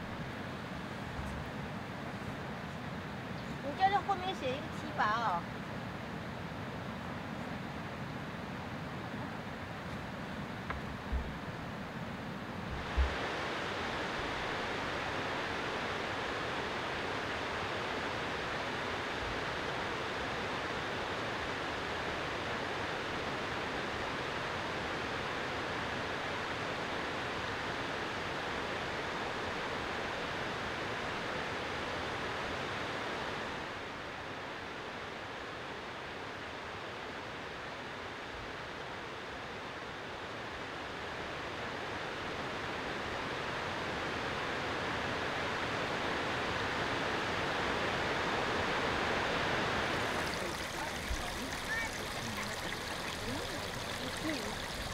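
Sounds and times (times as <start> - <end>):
sea waves: 0.0 - 7.1, 47.5 - 54.9
wind: 0.0 - 54.9.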